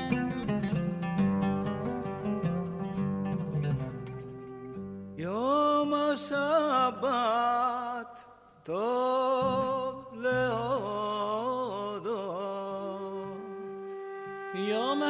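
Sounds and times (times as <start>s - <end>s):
solo voice singing: 5.2s - 15.0s.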